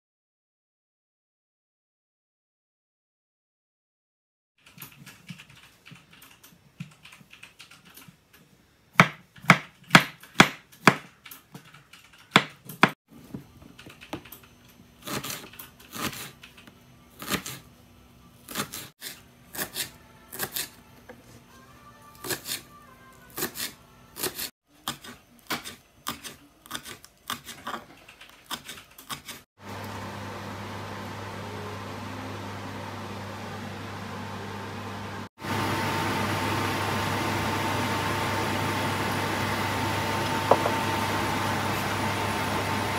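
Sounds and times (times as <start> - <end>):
knife chopping on wooden board: 9.0 - 11.1, 40.4 - 40.8.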